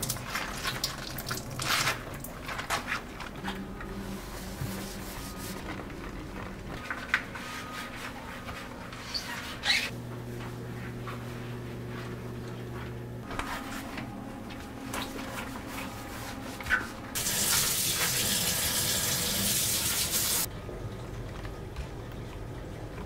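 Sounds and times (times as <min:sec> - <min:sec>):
low steady hum: 0:00.0 - 0:17.3
gloved hands wiping counter: 0:03.9 - 0:06.1
faucet running into metal sink: 0:17.2 - 0:20.5.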